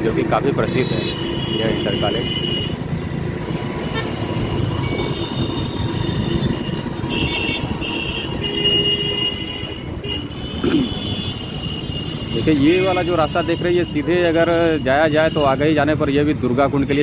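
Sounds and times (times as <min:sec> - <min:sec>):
motorcycle engine: 0:00.0 - 0:12.9
road noise: 0:00.0 - 0:17.0.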